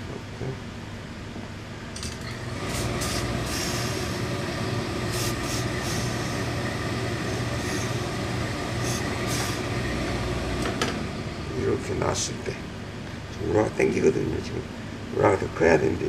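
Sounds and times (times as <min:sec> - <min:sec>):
low machine hum: 0:00.0 - 0:16.0
steam iron hissing: 0:02.4 - 0:10.6.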